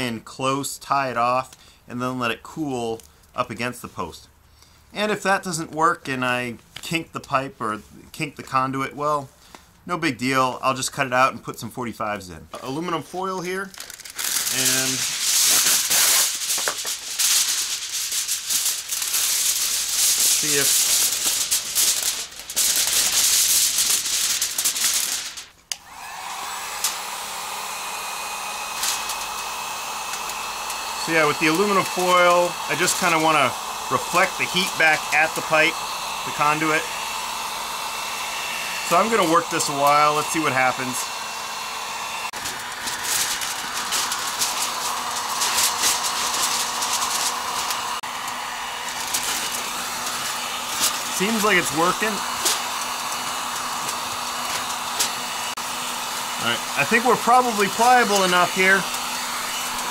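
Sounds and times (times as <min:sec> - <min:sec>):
heat gun blowing whine: 0:12.6 - 0:59.9
aluminium foil crinkling: 0:13.6 - 0:25.6, 0:42.4 - 0:47.8.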